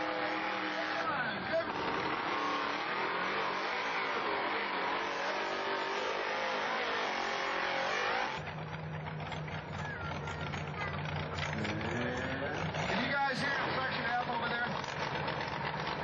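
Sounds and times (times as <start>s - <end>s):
truck engine revving: 0.0s - 16.0s
engine idling: 8.3s - 16.0s.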